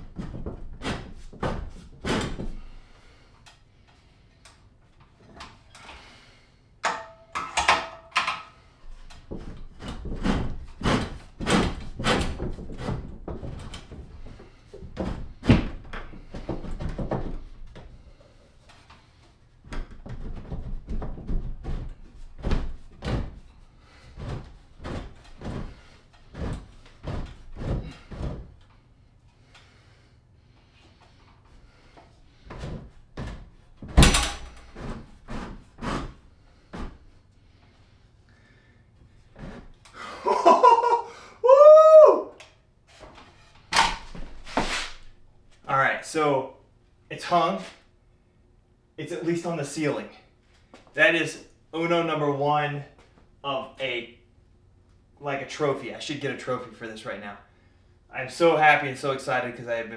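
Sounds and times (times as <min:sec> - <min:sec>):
wooden rack knocking and thudding: 0:09.2 - 0:18.0, 0:19.7 - 0:23.6.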